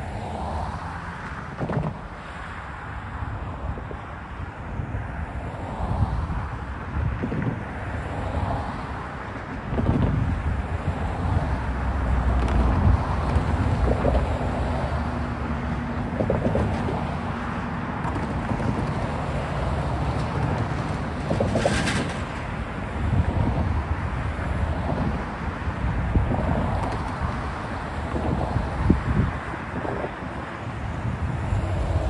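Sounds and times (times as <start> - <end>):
cars driving past: 0.0 - 32.0.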